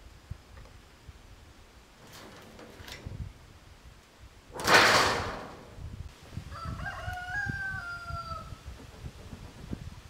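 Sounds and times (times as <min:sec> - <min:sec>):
rooster crowing: 0:06.5 - 0:08.6.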